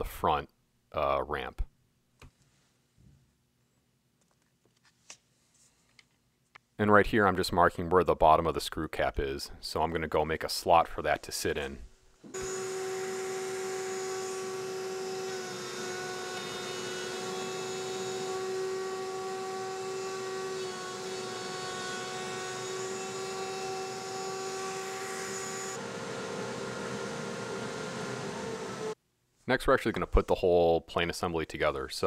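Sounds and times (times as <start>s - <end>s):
router high-pitched whine: 12.3s - 29.0s.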